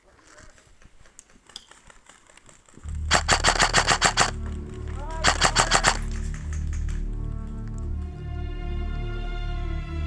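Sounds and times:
background music: 2.9 - 10.0
airsoft rifle full-auto bursts: 3.0 - 4.4, 5.2 - 6.2.

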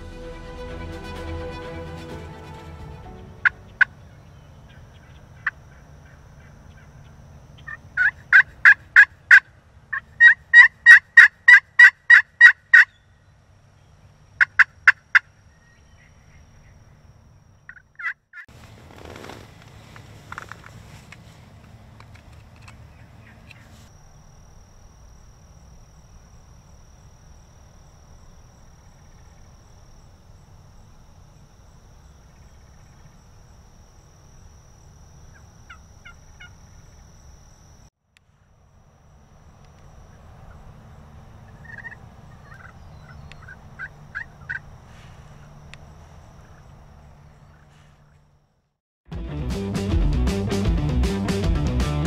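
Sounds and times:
low rumble: 0.0 - 5.3
wild turkeys calling: 3.4 - 13.1, 14.4 - 16.8, 17.7 - 18.2, 35.3 - 37.0, 40.1 - 45.6, 46.3 - 48.2.

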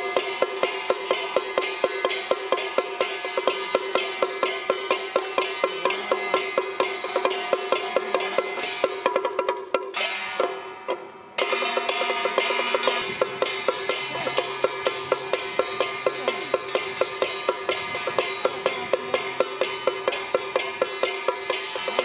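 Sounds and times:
percussion band sharp ringing strikes: 0.0 - 22.0.

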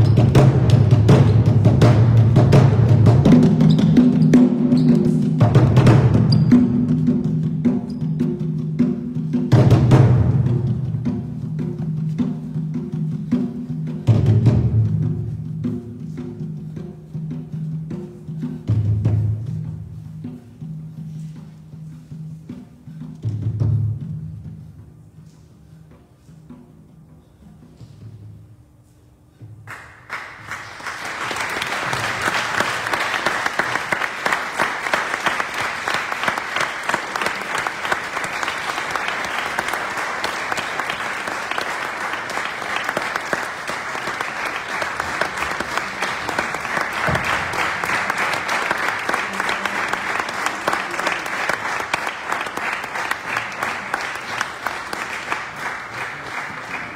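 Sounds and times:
audience applause: 29.7 - 56.9.

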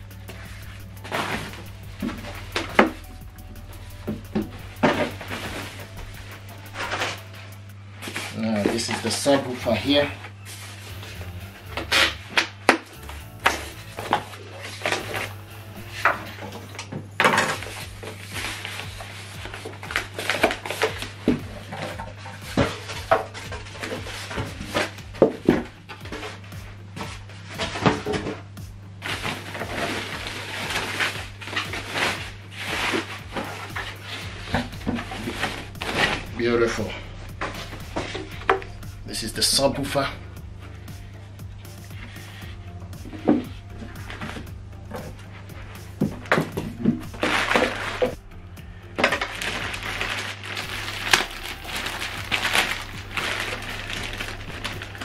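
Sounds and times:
plastic wrapping crinkling: 0.0 - 28.4, 29.0 - 40.2, 41.8 - 55.0
plastic bag crinkling: 29.0 - 40.1, 46.2 - 48.2, 49.0 - 55.0.

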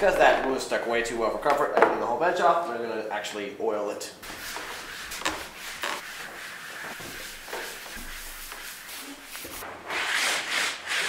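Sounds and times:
cloth wiping a workbench: 4.2 - 11.0.

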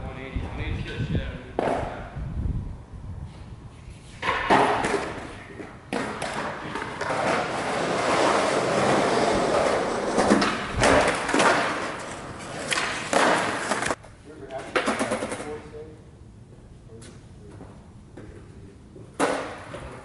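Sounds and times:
skateboard wheels rolling on concrete: 3.2 - 15.5
skateboard clacks and thuds: 4.2 - 14.0, 19.2 - 20.0.

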